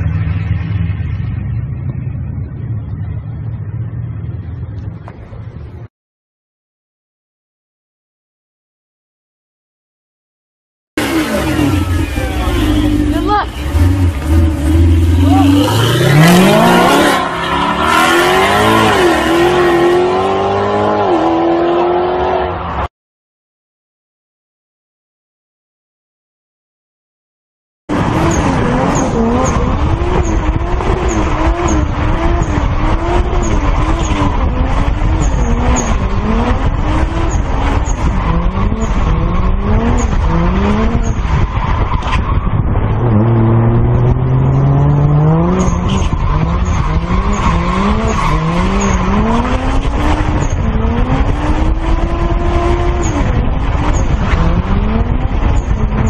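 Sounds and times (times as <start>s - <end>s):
car engine revving hard: 11.0s - 22.8s, 27.9s - 41.8s, 42.8s - 56.0s.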